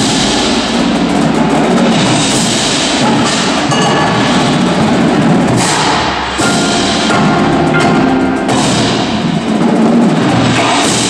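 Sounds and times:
drums: 0:00.0 - 0:11.0
marimbas and vibraphones: 0:06.4 - 0:10.0.

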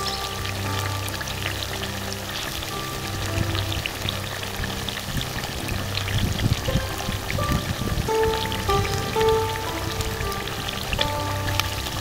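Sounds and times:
background music: 0:00.0 - 0:12.0
curry bubbling in pot: 0:00.0 - 0:12.0.

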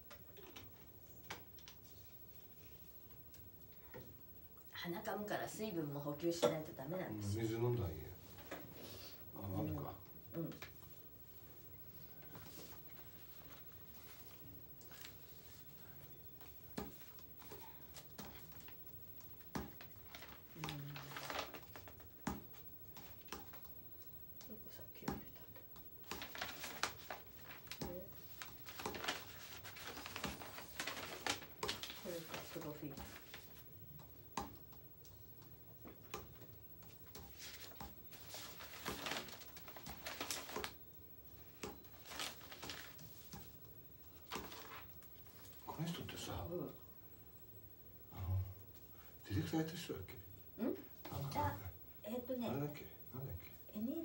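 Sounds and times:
rustling: 0:26.0 - 0:33.7, 0:36.8 - 0:45.7.

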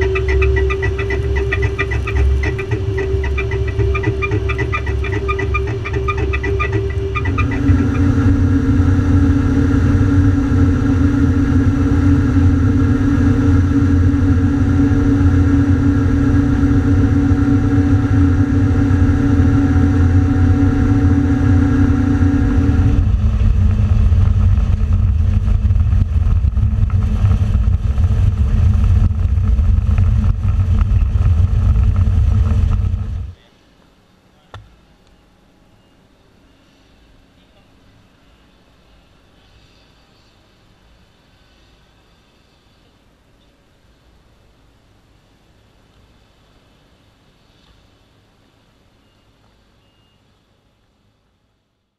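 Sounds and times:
combine harvester and tractor engine drone: 0:00.0 - 0:33.7.

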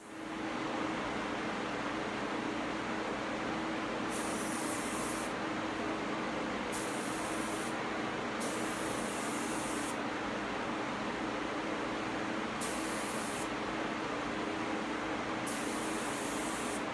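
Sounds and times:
spray gun hissing: 0:04.1 - 0:05.3, 0:06.7 - 0:07.8, 0:08.4 - 0:10.0, 0:12.6 - 0:13.5, 0:15.5 - 0:16.9.

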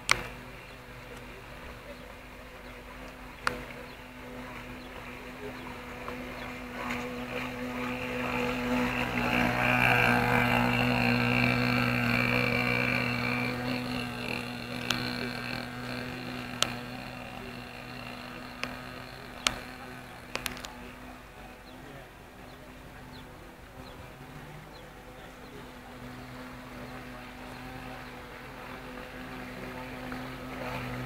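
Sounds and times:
model boat engine running: 0:00.0 - 0:31.0
sharp clicks: 0:13.1 - 0:20.8.

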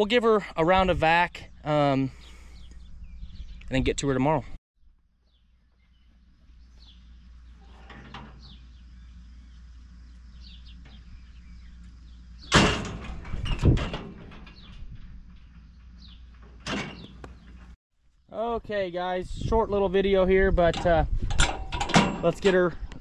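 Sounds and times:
steel cattle chute clanging: 0:07.6 - 0:08.9, 0:10.7 - 0:17.8, 0:20.7 - 0:22.7.

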